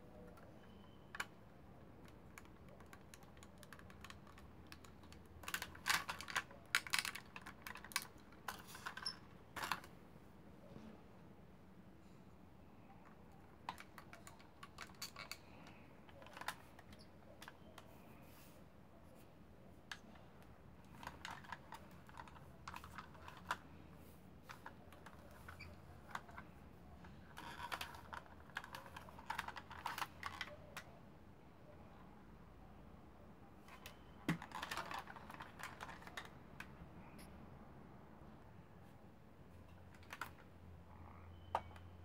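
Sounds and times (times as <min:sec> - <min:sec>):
plastic toy parts clicking: 0:02.0 - 0:09.9, 0:13.6 - 0:17.8, 0:20.8 - 0:23.6, 0:27.2 - 0:30.9, 0:33.7 - 0:36.7.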